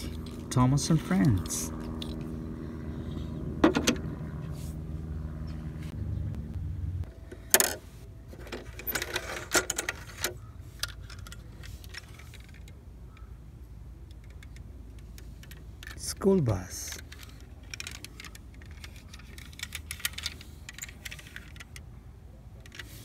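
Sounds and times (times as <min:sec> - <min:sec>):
steady low hum: 0:00.0 - 0:23.0
toy vehicles clicking and clinking: 0:07.4 - 0:12.8, 0:14.0 - 0:21.9.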